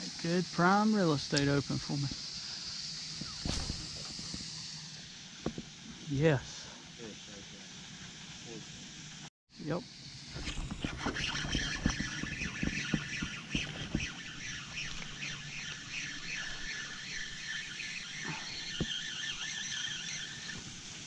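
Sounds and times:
rapid high chirping: 1.8 - 5.1, 11.1 - 21.0.

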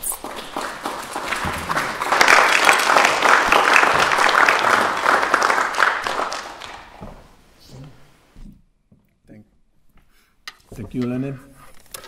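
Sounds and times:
audience applauding: 0.0 - 7.2.

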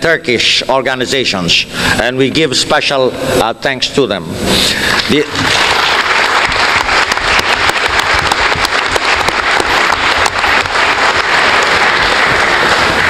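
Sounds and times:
audience applauding: 4.9 - 13.0.

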